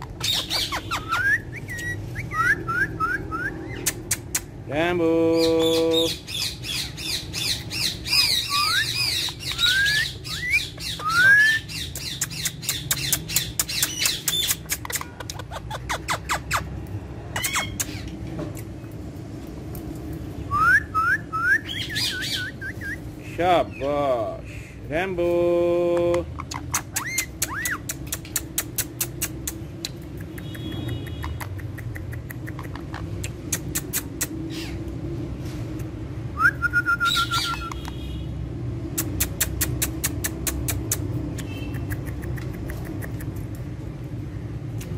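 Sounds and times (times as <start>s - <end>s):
parakeets chirping and squawking: 0.0s - 4.6s, 5.3s - 18.9s, 21.7s - 24.9s, 26.2s - 30.0s, 30.8s - 35.0s
whistled chirps: 8.5s - 11.7s, 36.4s - 37.8s
sharp clicks: 11.9s - 15.4s, 26.0s - 34.4s, 39.0s - 43.6s.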